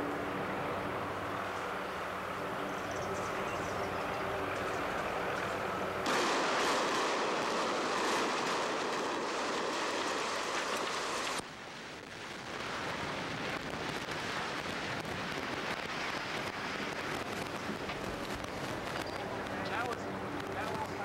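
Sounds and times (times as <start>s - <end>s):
demolition charges exploding: 6.0s - 19.2s
building collapsing rumble: 6.1s - 19.2s.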